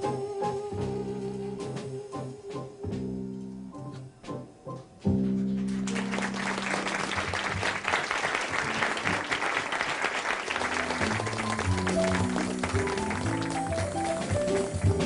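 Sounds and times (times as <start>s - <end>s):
piano and bass playing: 0.0s - 15.0s
audience applauding: 5.6s - 15.0s
jazz trio chord ringing: 10.7s - 15.0s.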